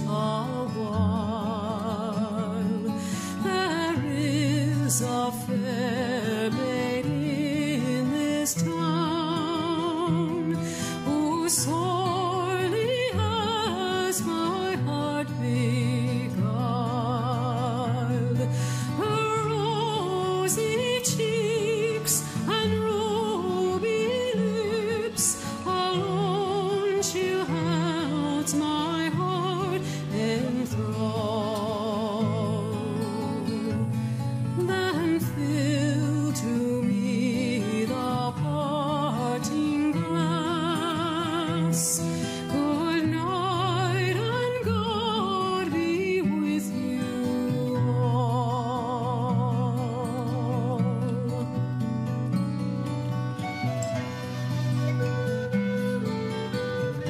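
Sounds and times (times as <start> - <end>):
slow melody with heavy vibrato: 53.0 - 57.0.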